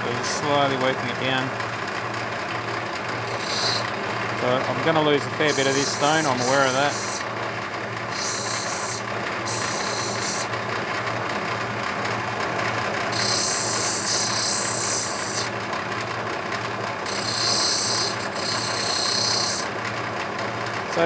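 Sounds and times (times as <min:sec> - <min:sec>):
grinding wheel motor hum: 0:00.0 - 0:21.0
stone grinding hiss: 0:03.3 - 0:03.9, 0:05.5 - 0:07.2, 0:08.1 - 0:10.5, 0:13.2 - 0:15.5, 0:17.1 - 0:19.7.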